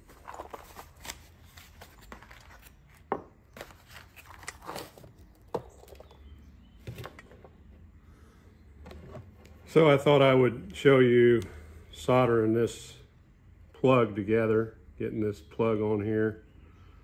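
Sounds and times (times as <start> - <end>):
cardboard box rustling: 0.0 - 6.1.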